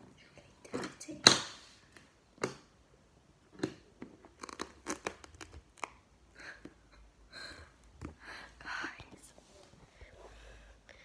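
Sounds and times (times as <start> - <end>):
soft breathy whisper: 0.0 - 1.0, 7.3 - 11.0
crackling and crumpling by hand: 3.5 - 6.9.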